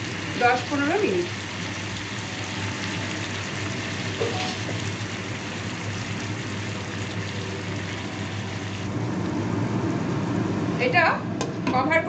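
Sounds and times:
chicken and onions sizzling in oil: 0.0s - 11.1s.

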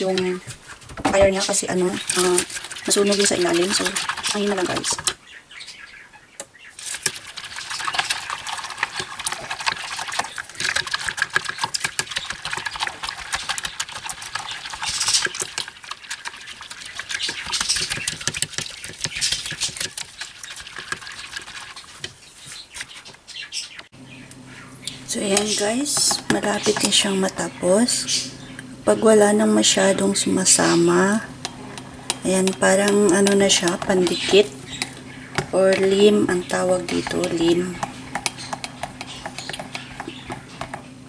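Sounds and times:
spatula scraping a steel pot: 6.8s - 22.4s, 31.4s - 40.8s.

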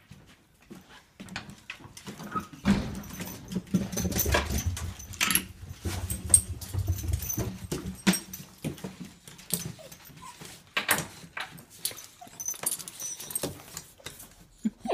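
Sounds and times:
dog whimpering: 9.6s - 10.6s, 14.6s - 14.9s.

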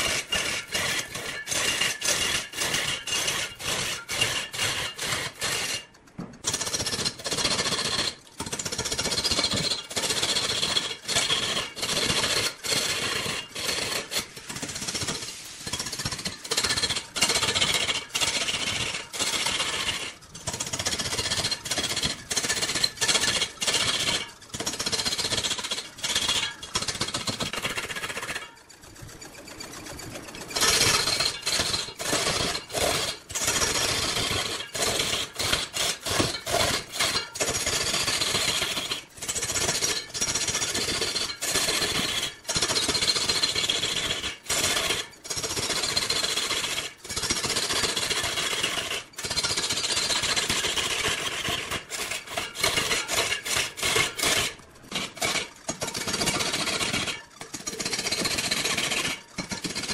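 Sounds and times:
lathe tool scraping wood: 30.4s - 39.0s, 51.1s - 59.2s.

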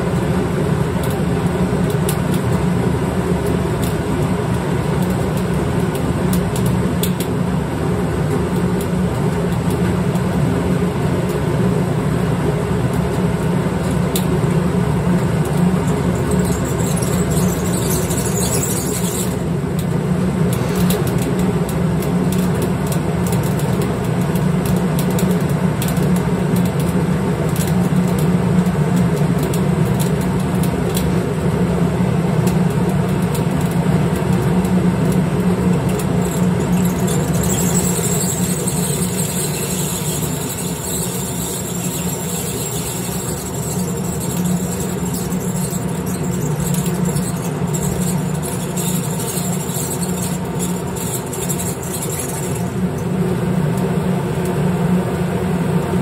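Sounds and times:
grain mill running: 10.8s - 21.1s, 34.7s - 53.6s.

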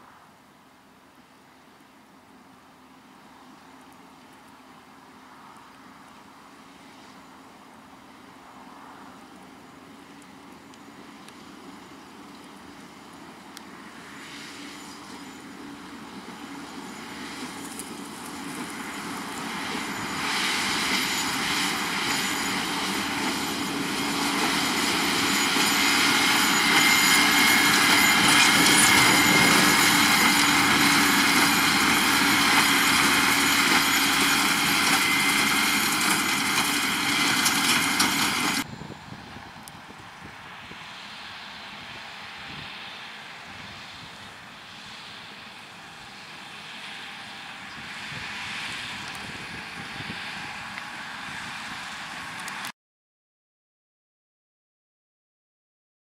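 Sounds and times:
baler high whine: 8.0s - 52.7s
tractor diesel engine: 9.3s - 52.7s.

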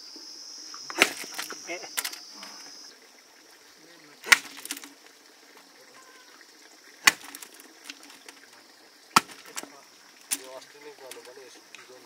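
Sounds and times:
sharp knocks: 4.3s - 4.9s, 7.0s - 8.2s, 9.2s - 9.7s.

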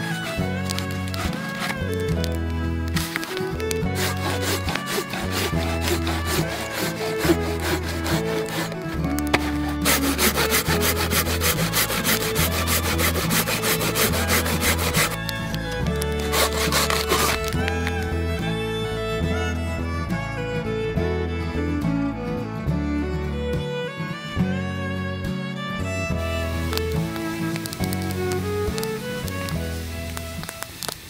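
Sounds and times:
hand saw cutting log: 0.0s - 18.6s, 26.4s - 30.6s.

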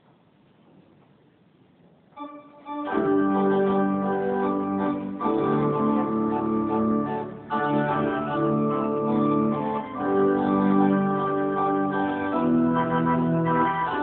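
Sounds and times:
pipe organ playing hymn: 2.2s - 14.0s.

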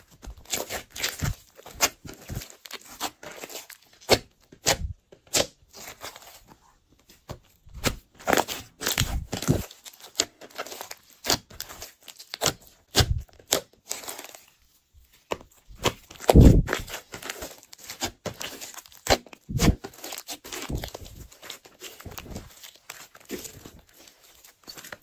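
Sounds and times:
slime kneaded by hand: 0.0s - 25.0s.

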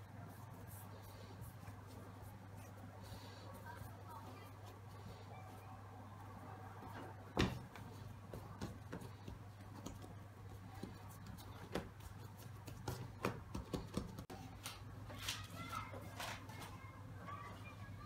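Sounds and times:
hands patting dough: 6.8s - 16.4s
paper rustling: 14.6s - 16.8s.

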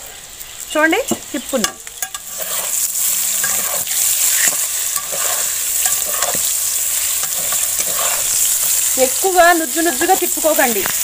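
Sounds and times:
vegetables sizzling in hot oil: 0.0s - 11.0s
spatula scraping a pan: 2.0s - 9.4s.

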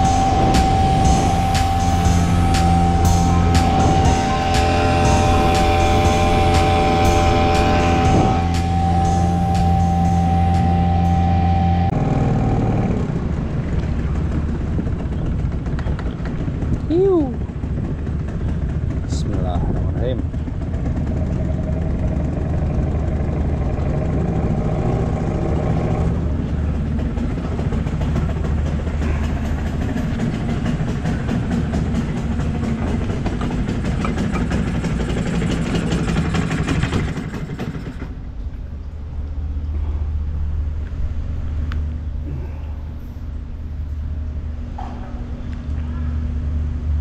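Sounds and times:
outboard motor humming: 0.0s - 37.6s.

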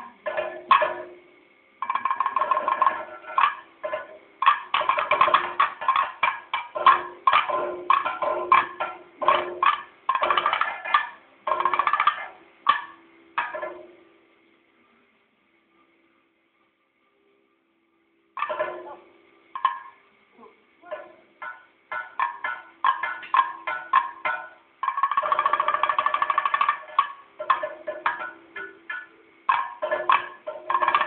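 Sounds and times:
rapid drum strokes: 1.8s - 14.0s, 20.9s - 31.0s.

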